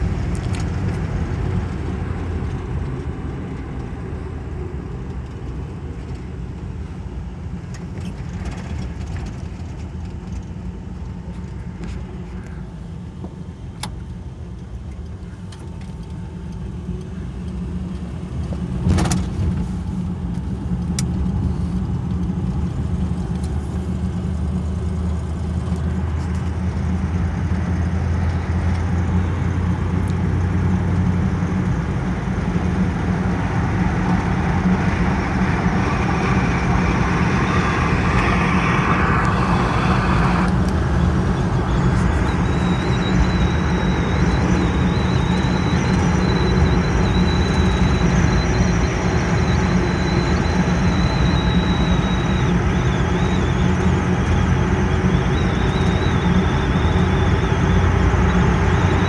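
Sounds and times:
car engine hum: 0.0 - 59.0
road noise: 0.0 - 59.0
faint high whine: 31.9 - 59.0.

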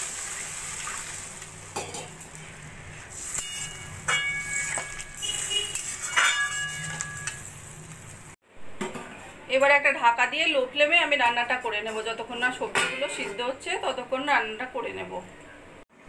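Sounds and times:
water sizzling in hot oil: 0.0 - 8.4
spatula scraping and clinking on wok: 3.2 - 8.0.

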